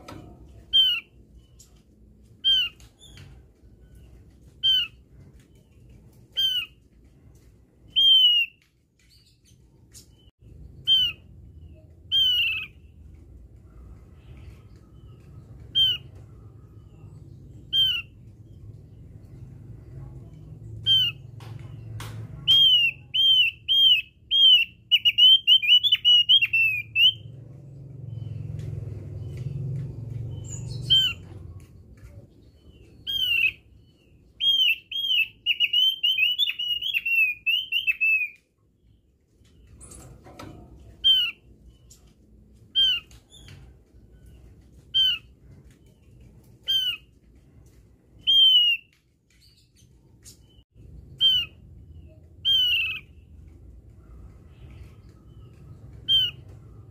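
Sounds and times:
bird whistled calls: 0:07.9 - 0:08.6, 0:10.8 - 0:11.2, 0:12.1 - 0:12.8, 0:22.5 - 0:27.2, 0:34.4 - 0:38.4, 0:48.2 - 0:48.9, 0:51.2 - 0:51.6, 0:52.4 - 0:53.1, 0:56.1 - 0:56.4.

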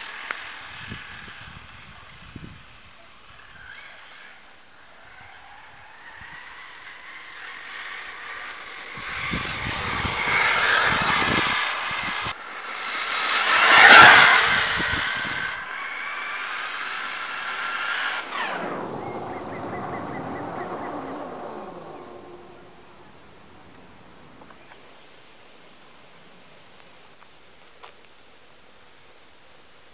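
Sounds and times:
rc car motor whining: 0:00.0 - 0:23.0
tyres over dirt and gravel: 0:00.0 - 0:25.0.

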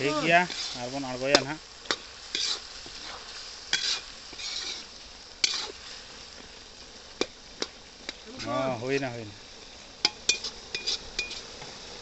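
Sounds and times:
metal spatula scraping a pan: 0:00.0 - 0:06.1, 0:10.0 - 0:11.6
chicken sizzling in a pan: 0:00.0 - 0:12.0.

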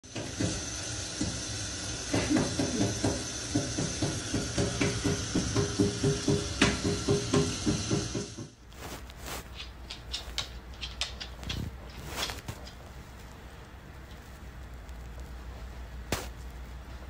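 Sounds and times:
water running from a tap: 0:00.0 - 0:08.5.

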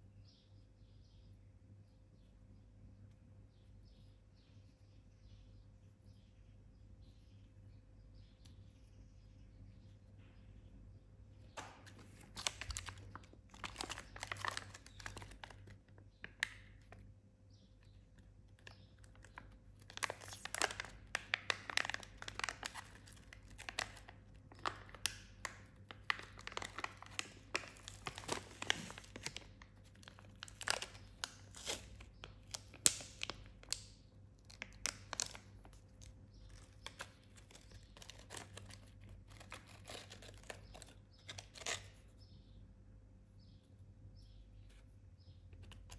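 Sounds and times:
plastic packaging crinkling: 0:11.6 - 0:17.0, 0:18.6 - 0:42.0.

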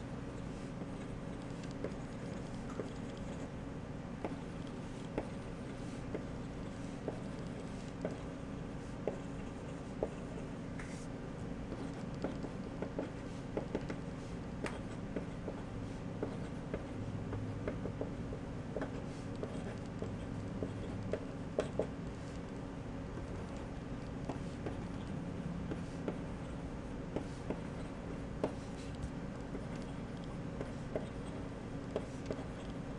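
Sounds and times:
low background hum: 0:00.0 - 0:32.9
pencil scratching on paper: 0:04.2 - 0:11.1, 0:14.6 - 0:17.0, 0:18.8 - 0:22.4, 0:23.2 - 0:32.9.

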